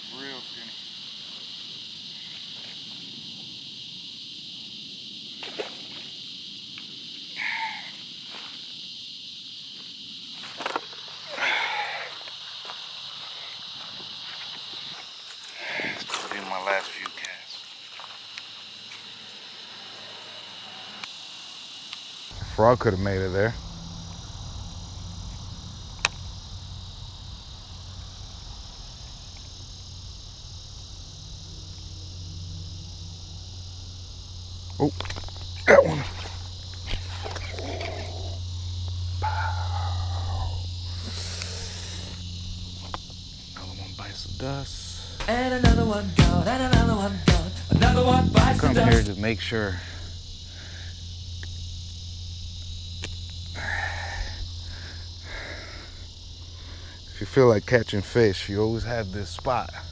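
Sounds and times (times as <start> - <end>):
insect chorus drone: 0.0 - 59.9
constant low hum: 22.2 - 59.9.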